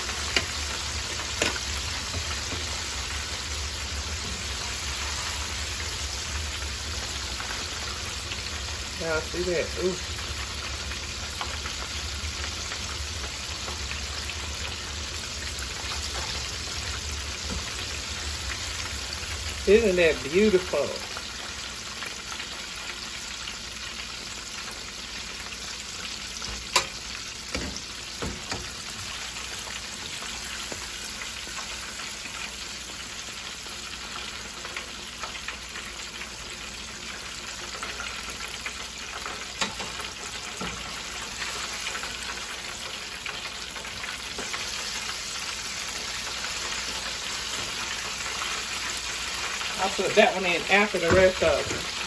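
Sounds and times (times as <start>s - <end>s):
fish deep-frying sizzle: 0.0s - 52.0s
metal fork clicking on pot: 26.7s - 26.9s.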